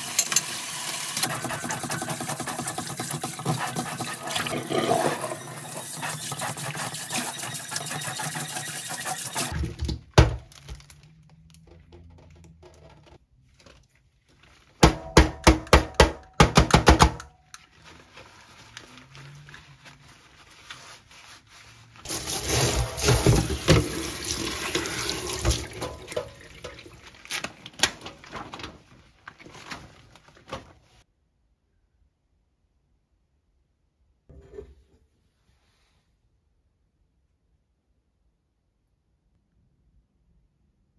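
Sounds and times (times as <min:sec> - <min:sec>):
faucet water running into sink: 0:00.0 - 0:09.6, 0:22.1 - 0:27.0
scrubbing strokes in sink: 0:01.1 - 0:09.6, 0:17.6 - 0:27.2.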